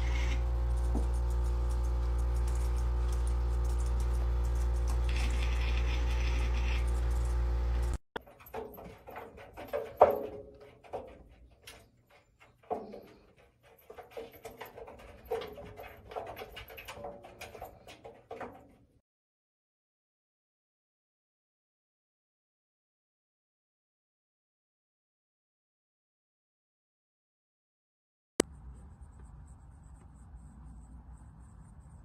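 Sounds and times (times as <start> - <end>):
steady low hum: 0.0 - 8.0
cat scrambling inside washing machine drum: 8.2 - 18.9.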